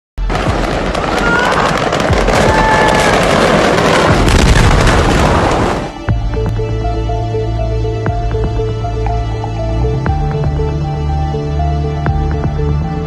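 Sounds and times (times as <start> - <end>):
fireworks crackling and popping: 0.2 - 6.0.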